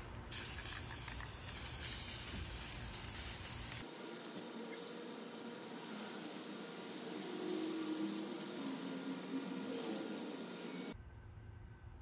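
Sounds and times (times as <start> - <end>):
spray paint can hissing: 0.0 - 3.9.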